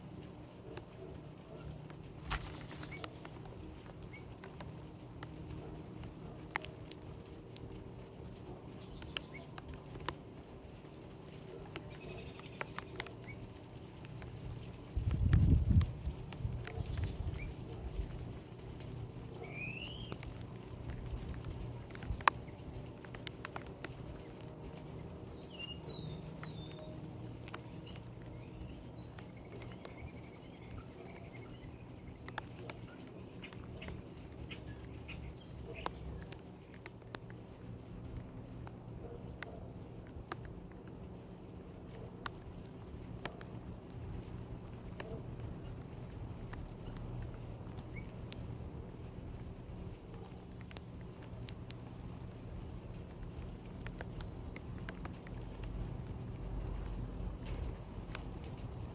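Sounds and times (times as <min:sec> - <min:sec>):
steady low rumble: 0:00.0 - 0:58.9
light ticks and taps: 0:00.2 - 0:48.6, 0:49.3 - 0:58.9
faint songbird chirping: 0:00.4 - 0:06.8, 0:08.0 - 0:15.2, 0:15.8 - 0:23.3, 0:23.9 - 0:39.7, 0:44.6 - 0:46.0, 0:46.6 - 0:48.4
faint high bird chirps: 0:19.4 - 0:20.2.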